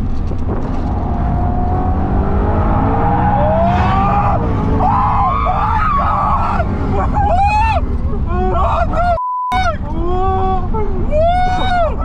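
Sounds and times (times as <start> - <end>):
car engine revving: 0.0 - 9.1.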